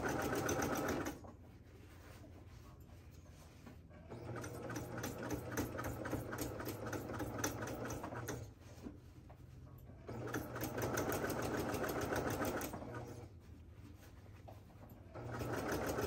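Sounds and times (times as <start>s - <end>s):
sewing machine stitching: 0.0s - 1.2s, 4.0s - 8.5s, 10.0s - 13.2s, 15.1s - 16.0s.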